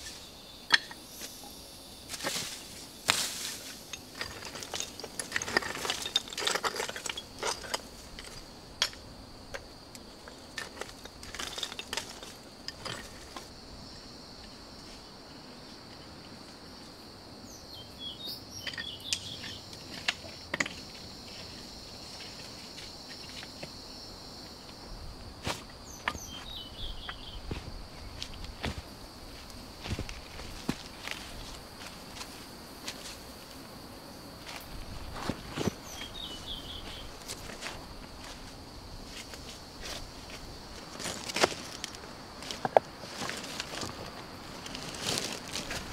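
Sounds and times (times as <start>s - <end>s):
insect buzz: 0.0s - 45.9s
bird chirps: 17.5s - 19.7s, 25.8s - 27.5s, 35.8s - 37.1s
footsteps on dry leaves: 26.3s - 33.2s, 43.0s - 45.9s.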